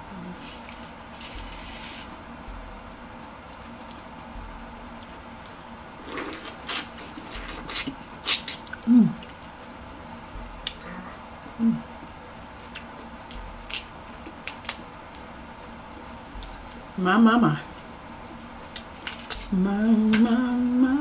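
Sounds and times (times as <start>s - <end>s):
person humming with enjoyment: 0.0s - 0.6s, 6.9s - 9.3s, 10.6s - 11.9s, 19.5s - 21.0s
wet lip smacks and chewing: 6.0s - 9.5s.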